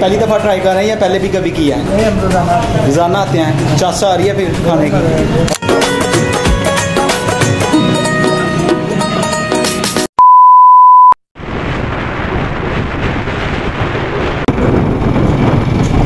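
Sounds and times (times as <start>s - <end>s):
background music: 3.5s - 10.1s
electronic beep: 10.2s - 11.2s
wind and road noise: 11.4s - 16.0s.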